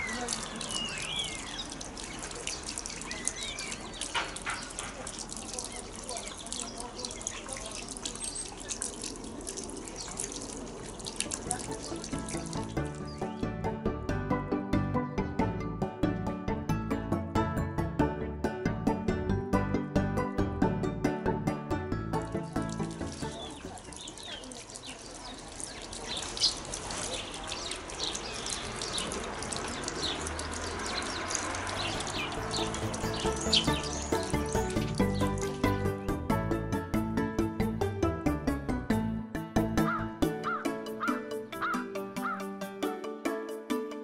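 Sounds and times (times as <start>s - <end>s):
small birds chirping: 0.0s - 13.6s, 22.2s - 36.0s
background music: 11.5s - 23.8s, 32.0s - 44.0s.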